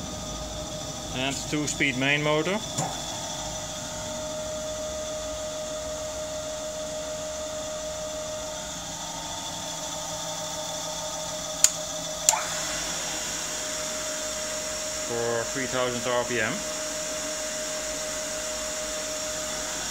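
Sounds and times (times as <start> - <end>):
grinder motor hum and whine: 0.0 - 19.9
selector switch clicks: 11.6 - 12.4.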